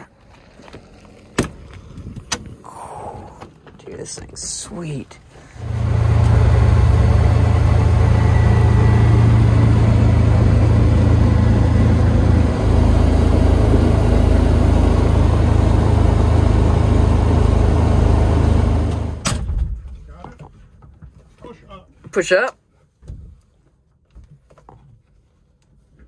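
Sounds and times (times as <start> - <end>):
vehicle engine droning: 5.3 - 19.2
rushing noise: 5.6 - 19.2.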